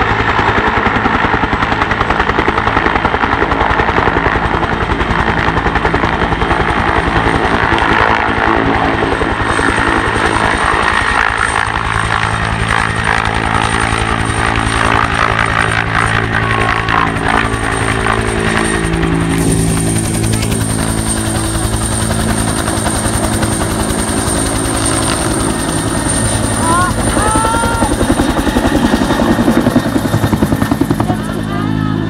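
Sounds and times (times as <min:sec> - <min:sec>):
helicopter rotor beating: 0:00.0 - 0:32.0
high turbine whine: 0:08.1 - 0:32.0
turbine engines running: 0:09.6 - 0:32.0.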